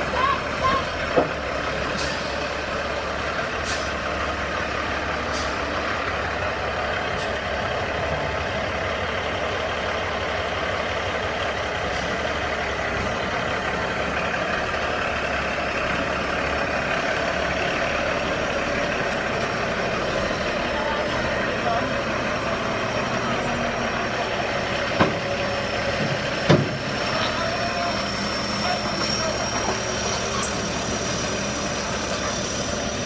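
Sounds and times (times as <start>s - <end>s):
diesel truck engine running: 0.0s - 33.0s
air brake hisses: 1.9s - 2.4s.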